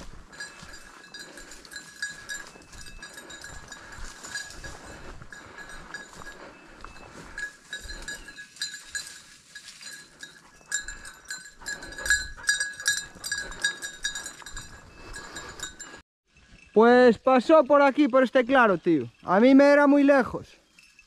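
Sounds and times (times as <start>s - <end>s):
footsteps: 0.0s - 16.7s
dog collar bell clanking: 0.0s - 16.8s, 20.6s - 21.0s.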